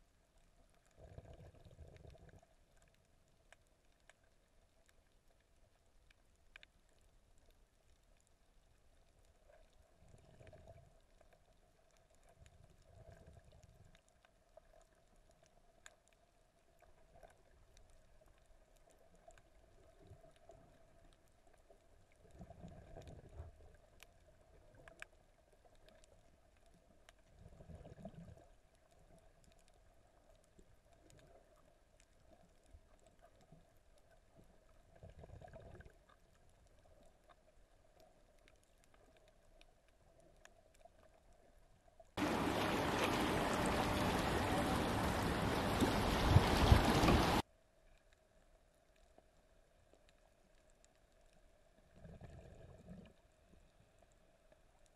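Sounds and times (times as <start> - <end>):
faint underwater hum: 0.0 - 54.9
low rushes of water: 42.2 - 47.4.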